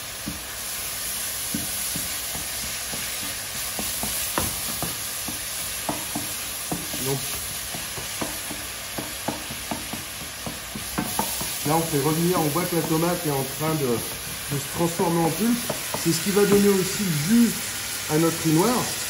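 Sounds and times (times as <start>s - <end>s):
vegetables sizzling in oil: 0.0s - 19.0s.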